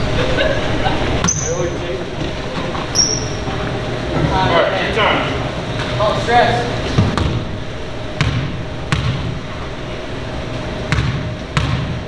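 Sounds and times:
steady hum: 0:00.0 - 0:12.0
basketball bouncing on hardwood floor: 0:08.2 - 0:09.3, 0:10.9 - 0:12.0.

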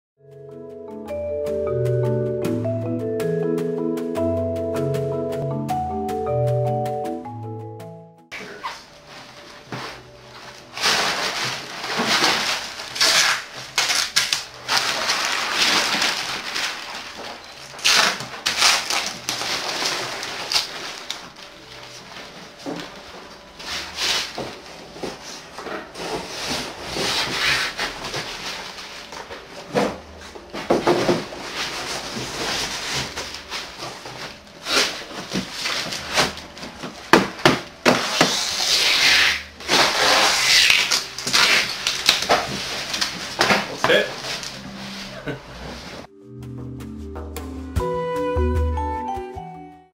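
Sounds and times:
paper rustling and crinkling: 0:08.3 - 0:46.1
cardboard knocks: 0:36.2 - 0:38.4.

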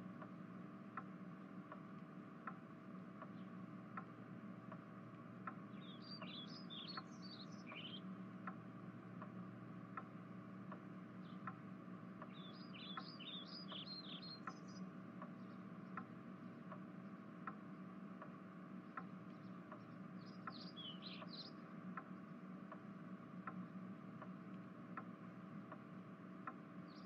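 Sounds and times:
faint regular ticking: 0:00.0 - 0:27.0
low steady hum: 0:00.0 - 0:27.0
small birds chirping: 0:02.4 - 0:08.6, 0:10.7 - 0:22.8, 0:26.4 - 0:27.0.

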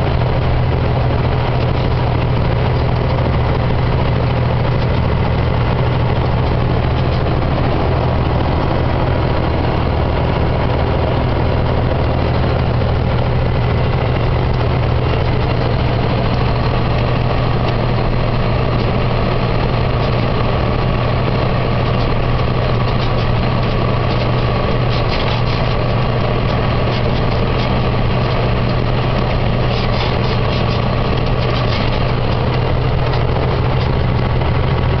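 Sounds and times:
truck engine droning: 0:00.0 - 0:35.0
tyre and road noise: 0:00.0 - 0:35.0.

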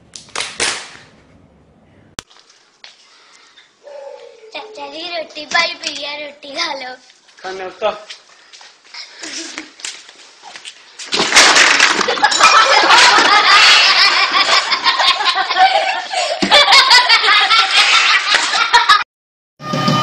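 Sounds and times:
loud laughter: 0:12.1 - 0:19.0.

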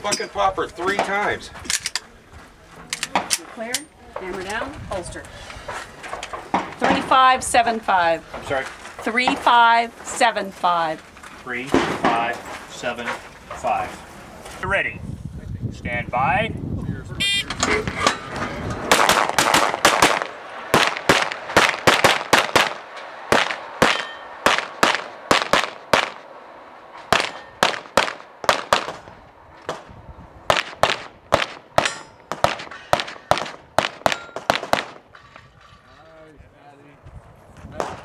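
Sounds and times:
rapid pistol shots: 0:18.9 - 0:26.3, 0:27.1 - 0:29.9, 0:30.5 - 0:35.1.

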